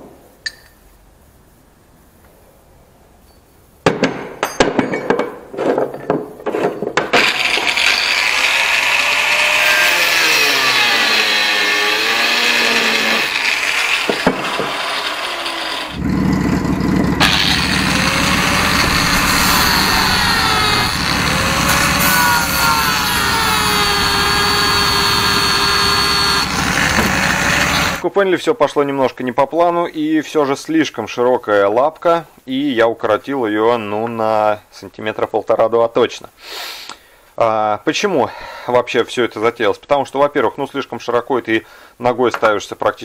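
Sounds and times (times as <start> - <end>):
power tool cutting steel: 7.2 - 28.0
deep steady hum: 15.9 - 28.0.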